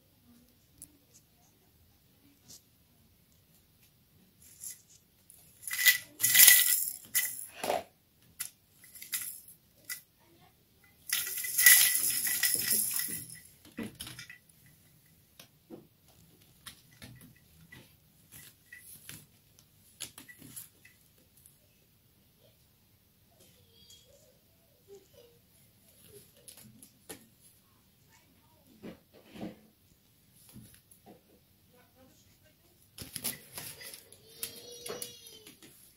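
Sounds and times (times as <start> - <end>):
mesh play tube rattling: 4.4 - 10.0, 11.0 - 14.8, 33.0 - 35.3.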